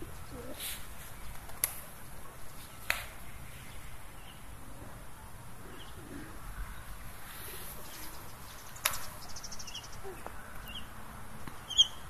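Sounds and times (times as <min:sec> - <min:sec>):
pigeons cooing: 0:00.0 - 0:00.9, 0:04.6 - 0:08.2.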